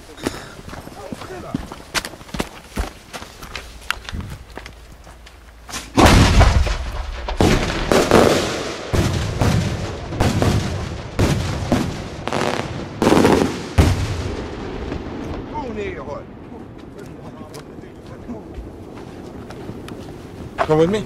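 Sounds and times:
loud sharp firework bangs: 5.7s - 16.1s.

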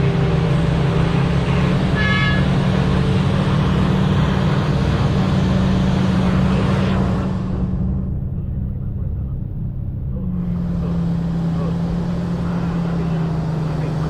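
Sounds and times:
heavy diesel engine running: 0.0s - 14.0s.

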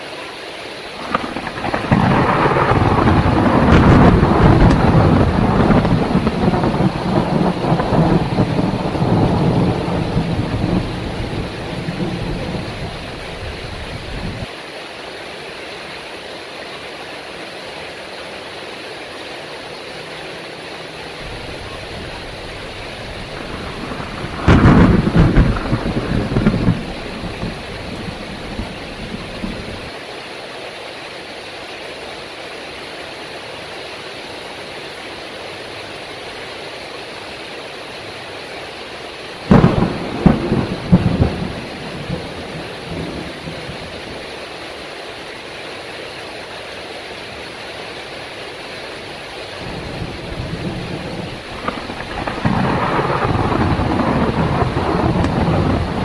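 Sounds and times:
heavy rain falling: 0.0s - 56.0s
thunder crack: 1.0s - 14.5s, 21.2s - 29.9s, 39.5s - 43.8s, 49.7s - 56.0s
thunder rumbling: 1.0s - 14.5s, 21.2s - 29.9s, 39.5s - 44.3s, 49.5s - 56.0s.

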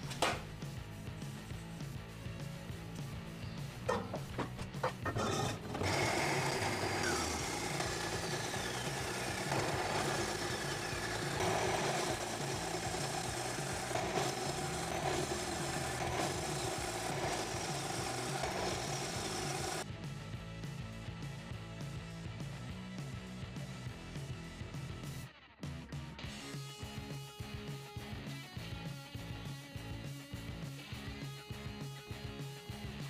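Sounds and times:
band saw cutting metal: 3.9s - 19.8s.

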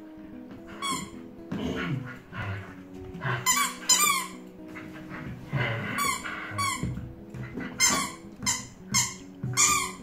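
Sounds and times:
squeaky dog toy squeaking: 0.7s - 1.2s, 3.4s - 4.5s, 6.0s - 7.0s, 7.7s - 10.0s.

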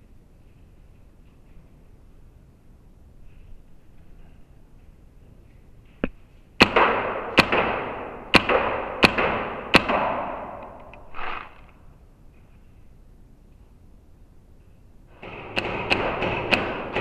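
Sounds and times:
paintball marker cracks echoing: 6.0s - 11.8s.

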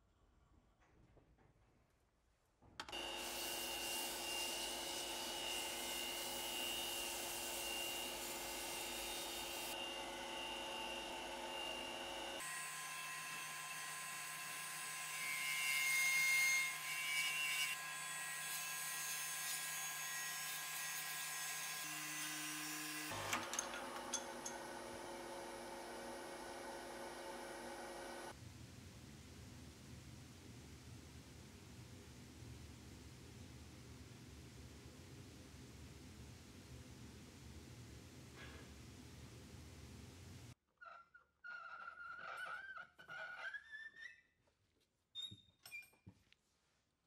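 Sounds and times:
power tool running: 2.9s - 13.0s.

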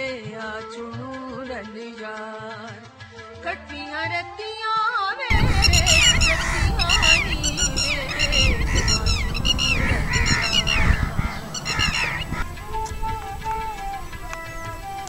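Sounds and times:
birds calling harshly: 5.3s - 15.0s
wind rumble on microphone: 5.3s - 15.0s.

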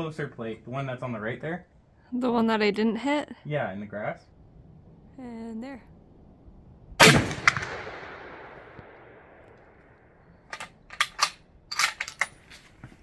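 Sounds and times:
rifle shot echoing: 7.0s - 10.3s
rifle bolt metallic clicks: 8.8s - 12.3s.

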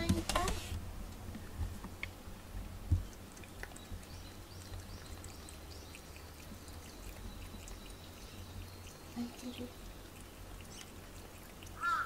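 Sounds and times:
cat lapping water from a bowl: 3.0s - 12.0s.

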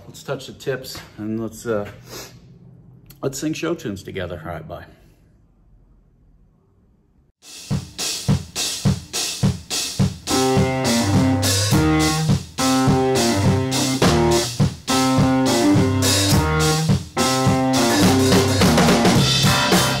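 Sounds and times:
rock music with guitar and drums: 10.1s - 20.0s.

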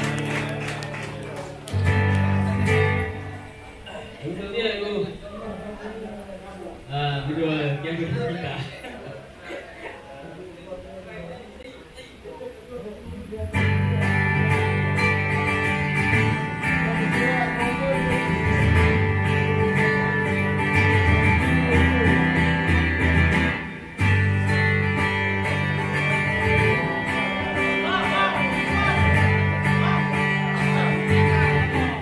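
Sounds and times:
acoustic band with strummed guitar: 0.0s - 4.4s, 13.2s - 32.0s.

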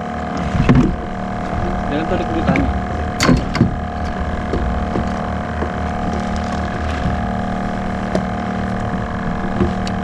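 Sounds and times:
small boat engine droning: 0.0s - 10.0s
faint clicks and knocks: 2.4s - 7.2s, 7.9s - 10.0s.

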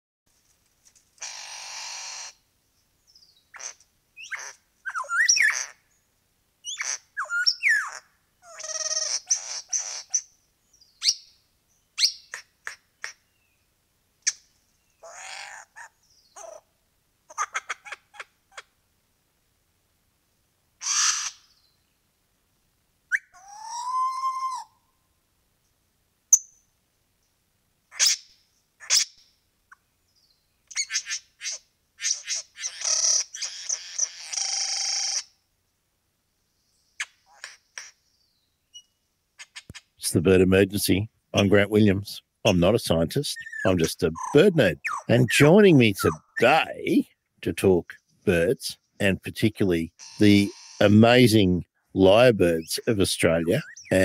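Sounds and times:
lyrebird singing: 3.1s - 6.0s, 6.6s - 13.6s, 14.2s - 16.7s, 27.9s - 35.4s, 36.7s - 40.2s, 40.9s - 54.0s.

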